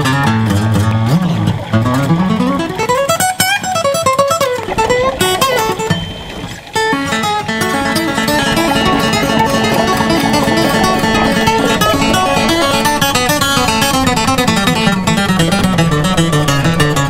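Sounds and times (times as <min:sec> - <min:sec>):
instrumental folk music with guitar: 0:00.0 - 0:17.0.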